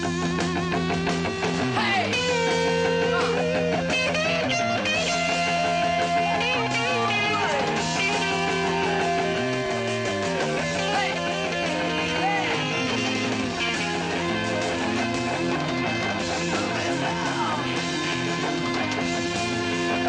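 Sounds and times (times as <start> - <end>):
bass line: 0.0 - 20.0
rock guitar lead bending notes: 0.0 - 20.0.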